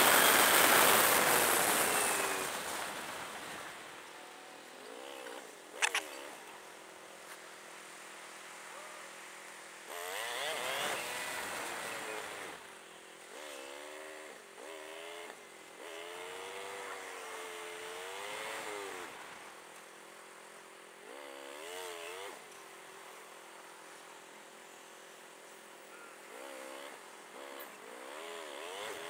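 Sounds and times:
motorcycle engine revving: 0.0 - 6.7, 9.8 - 19.4, 20.9 - 23.0, 26.2 - 29.0.

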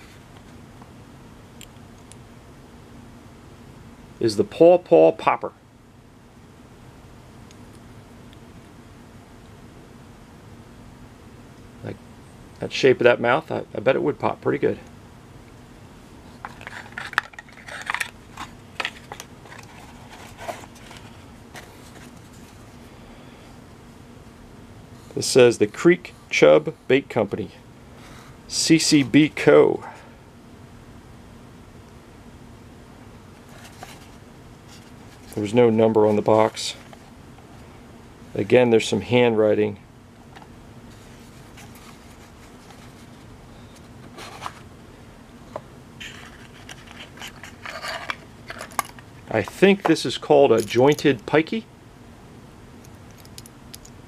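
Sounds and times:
faint steady hum: 0.0 - 54.0
light clicks and scrapes: 46.0 - 49.6.

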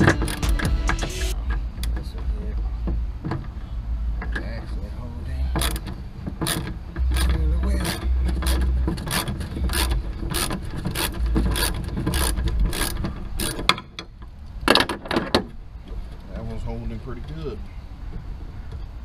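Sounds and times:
ratchet wrench clicking: 6.4 - 13.6.

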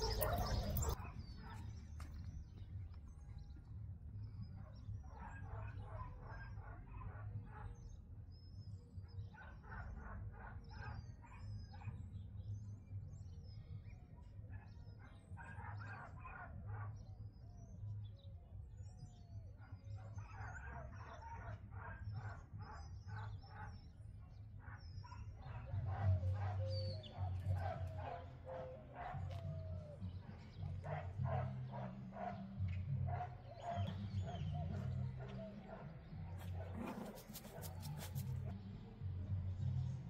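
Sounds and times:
dog barking: 0.0 - 1.8, 4.6 - 7.8, 9.3 - 12.0, 14.5 - 17.1, 19.6 - 24.0, 24.6 - 38.5
small birds chirping: 0.0 - 38.8.

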